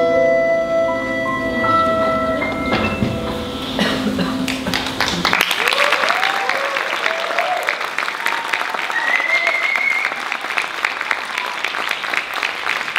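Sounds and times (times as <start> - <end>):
audience applauding: 4.2 - 12.9
people cheering: 4.5 - 12.9
high whistle: 9.0 - 10.2.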